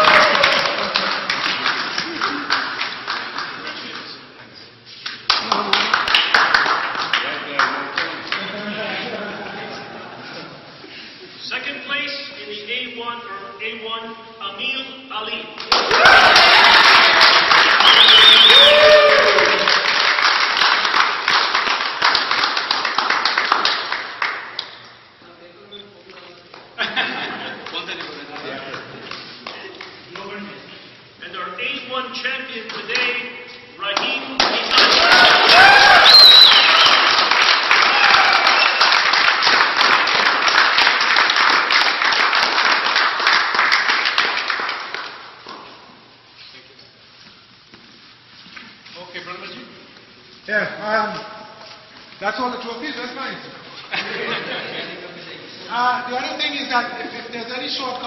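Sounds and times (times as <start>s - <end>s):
small crowd applauding: 0.0s - 4.2s, 5.0s - 8.8s, 15.6s - 24.8s, 26.5s - 30.4s, 33.9s - 45.7s.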